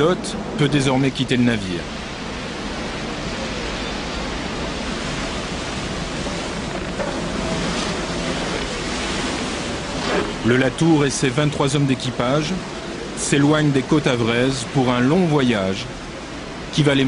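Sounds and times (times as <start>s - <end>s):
churning sea water: 0.0s - 17.0s
wind rushing: 1.8s - 10.8s.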